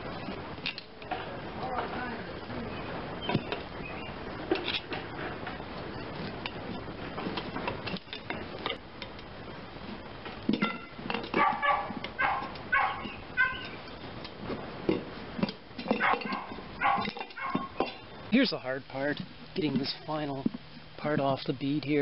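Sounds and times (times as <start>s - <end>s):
animal calling: 2.5s - 4.2s, 10.7s - 13.9s, 15.9s - 17.9s
metal scraping tire rim: 3.2s - 18.1s.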